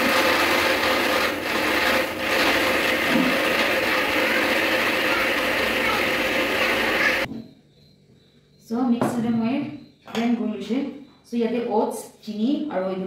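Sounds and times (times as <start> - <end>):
gritty grinding rush: 0.0 - 7.3
mixer grinder motor hum: 0.0 - 7.3.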